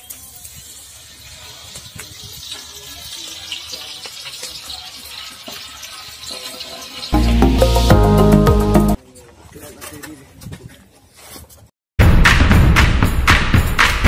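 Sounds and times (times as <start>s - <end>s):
oil sizzling in a pot: 0.0s - 9.0s.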